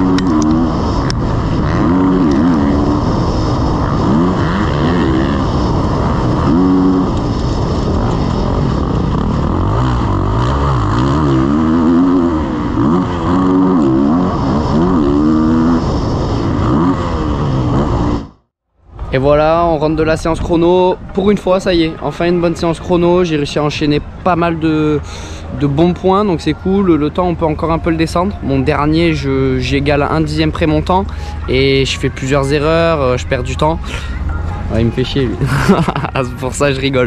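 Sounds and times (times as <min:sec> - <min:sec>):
motorcycle engine revving: 0:00.0 - 0:18.5.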